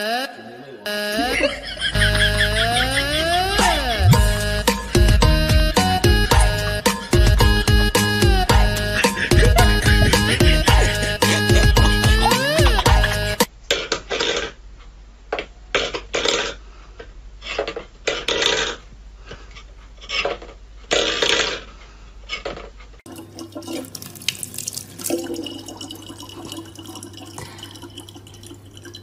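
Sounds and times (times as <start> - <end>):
low hum: 1.2 - 13.4
tap water running into bottle: 23.1 - 29.0.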